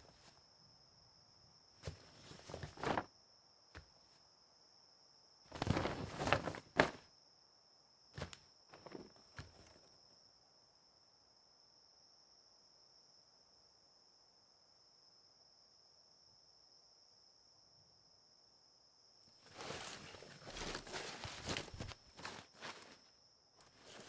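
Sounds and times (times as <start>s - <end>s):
clothing and gear rustling: 1.8s - 3.1s, 5.5s - 7.0s, 19.3s - 24.0s
footsteps: 19.4s - 24.0s.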